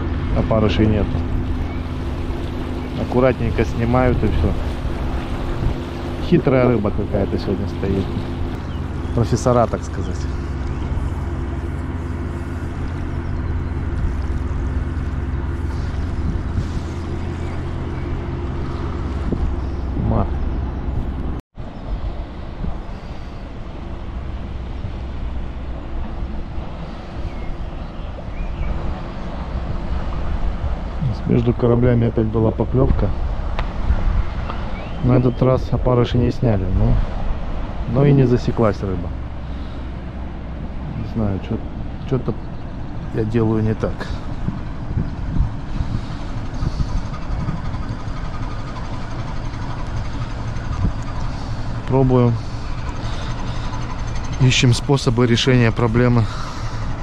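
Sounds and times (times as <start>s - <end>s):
boat engine drone: 0.0s - 57.0s
faint steady tones: 38.3s - 57.0s.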